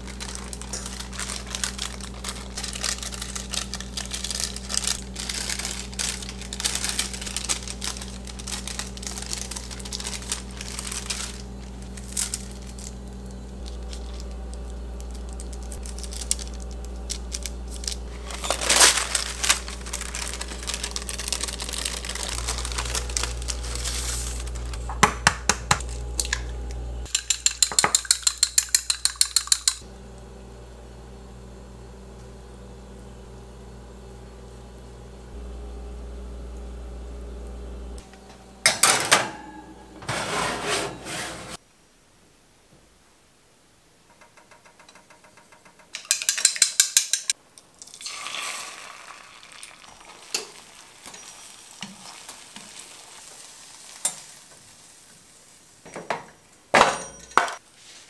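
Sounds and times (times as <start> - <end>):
paper crinkling and rustling: 0.0 - 24.9
handling sounds: 0.0 - 27.2.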